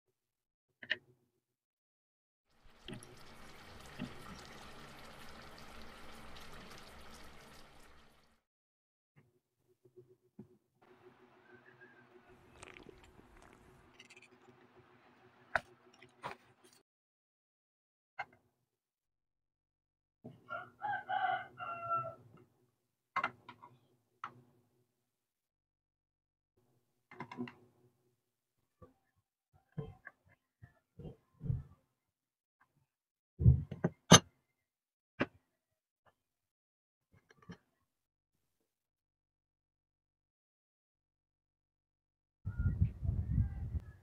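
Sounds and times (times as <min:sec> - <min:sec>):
spoon stirring liquid: 0:12.3 - 0:13.9
rooster crowing: 0:20.5 - 0:22.2.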